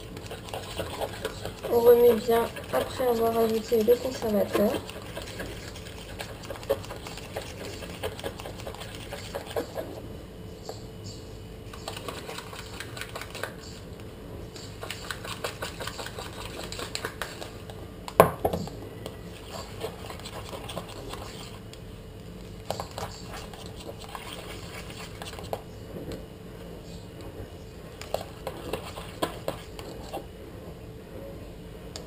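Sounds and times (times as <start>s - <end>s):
spoon scraping metal bowl: 0.2s - 9.8s, 19.3s - 21.6s.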